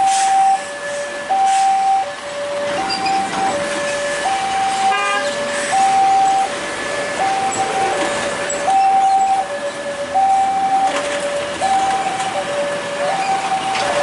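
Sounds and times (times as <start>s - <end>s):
passing traffic: 0.0s - 14.0s
two-tone crossing alarm: 0.0s - 14.0s.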